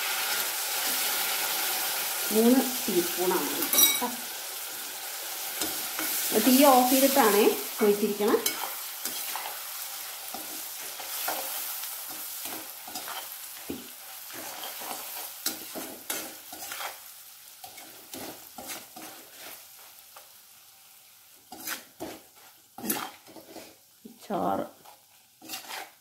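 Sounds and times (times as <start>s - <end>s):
hot oil sizzling: 0.0s - 26.0s
metal spoon scraping a pan: 3.3s - 4.2s, 5.4s - 19.9s, 21.5s - 23.9s, 24.8s - 26.0s.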